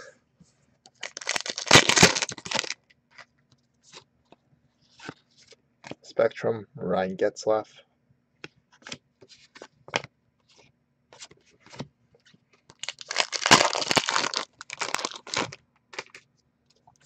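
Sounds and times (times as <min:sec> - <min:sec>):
packaging crinkling: 0:00.9 - 0:02.8, 0:12.7 - 0:16.2.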